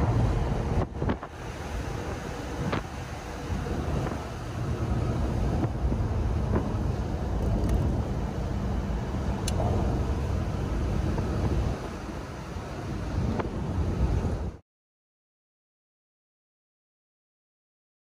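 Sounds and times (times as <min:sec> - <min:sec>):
car engine running: 0:00.0 - 0:14.6
road noise: 0:00.0 - 0:14.6.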